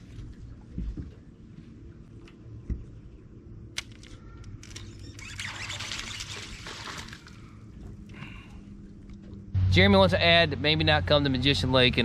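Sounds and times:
fish splashing and thrashing: 5.0 - 8.5.

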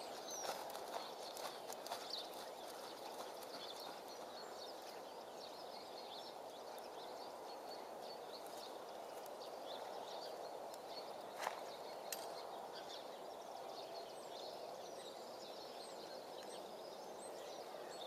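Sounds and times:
faint outdoor hiss: 0.0 - 18.0
small birds chirping: 0.0 - 18.0.

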